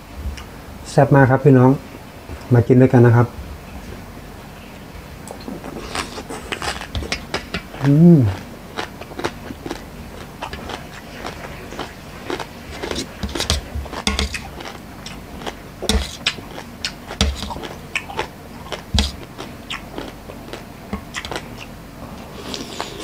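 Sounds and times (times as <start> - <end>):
biting and chewing: 5.3 - 23.0.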